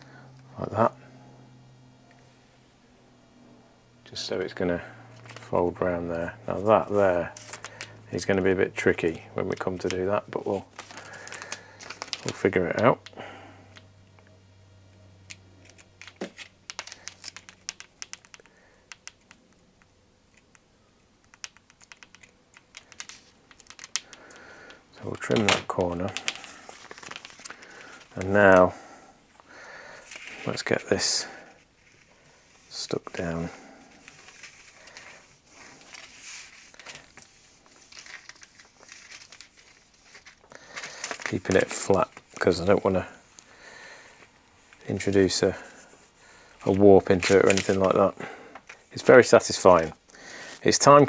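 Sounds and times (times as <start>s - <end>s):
plastic film clicking and crackling: 5.2s - 5.6s, 6.5s - 13.9s, 15.3s - 28.7s, 29.4s - 43.5s, 46.4s - 51.0s.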